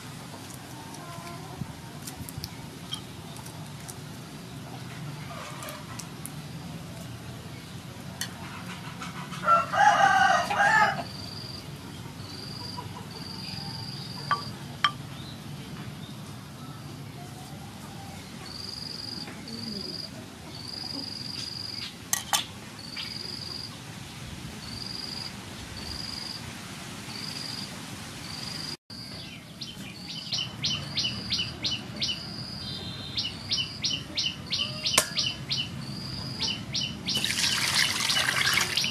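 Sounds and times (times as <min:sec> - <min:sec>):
rooster crowing: 0:09.4 - 0:11.2
small birds twittering: 0:28.2 - 0:38.9.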